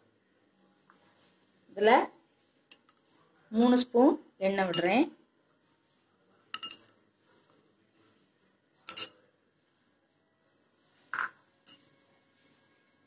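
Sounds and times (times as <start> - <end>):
spoon clinking against pot: 4.7 - 5.0, 6.5 - 6.9, 8.9 - 9.2, 11.2 - 11.9.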